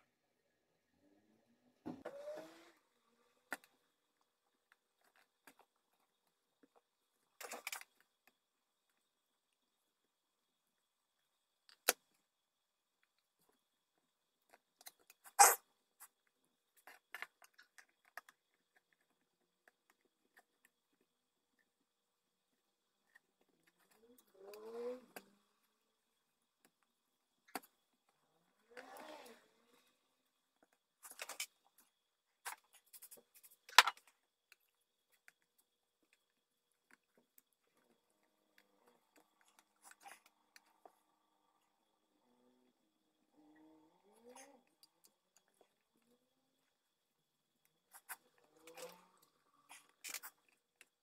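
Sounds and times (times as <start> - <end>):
rubber sheet rubbing and scraping: 1.9 - 2.9, 28.7 - 29.6.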